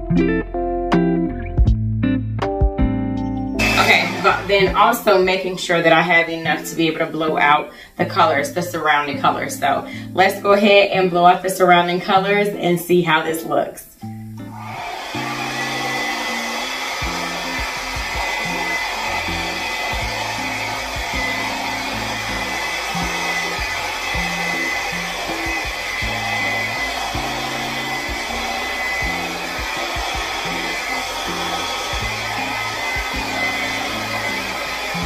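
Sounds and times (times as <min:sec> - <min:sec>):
soft background music: 0:00.0 - 0:14.6
blow dryer running: 0:03.6 - 0:07.6, 0:14.5 - 0:35.0.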